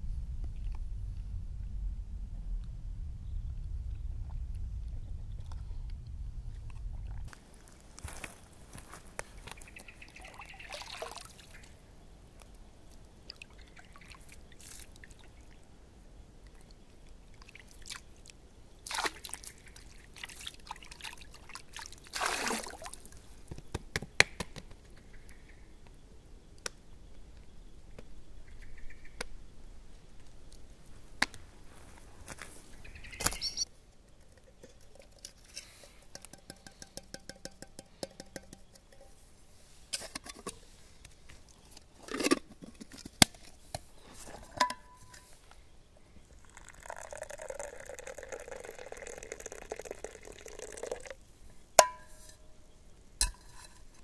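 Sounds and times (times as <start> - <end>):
water dripping: 9.4 - 11.7, 12.4 - 15.6, 46.3 - 51.2
water splashing: 10.0 - 11.7, 18.8 - 23.2.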